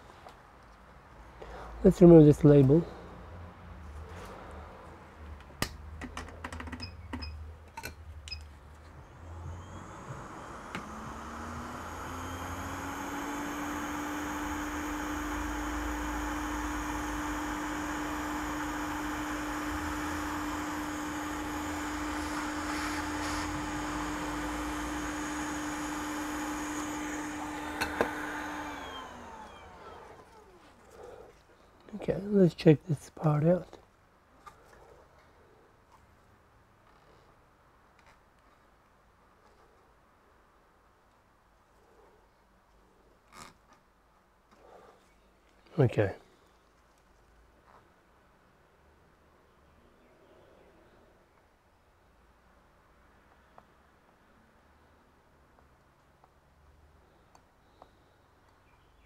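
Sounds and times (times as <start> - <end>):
hot air station fan hum: 8.8 - 31.2.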